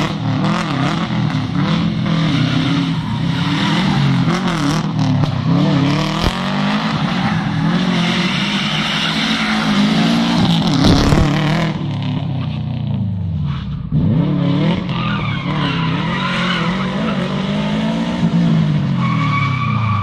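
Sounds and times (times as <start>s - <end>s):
car engine revving: 0.0s - 20.0s
tyres squealing on asphalt: 1.2s - 11.2s, 14.6s - 20.0s.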